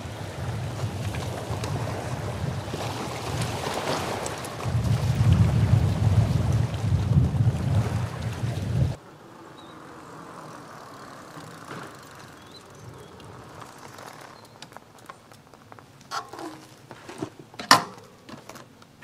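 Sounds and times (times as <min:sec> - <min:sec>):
wind buffeting microphone: 0:00.0 - 0:09.0
lake waves lapping: 0:00.0 - 0:17.2
bicycle rolling over concrete: 0:00.0 - 0:17.6
bicycle clicks and knocks: 0:10.7 - 0:19.0.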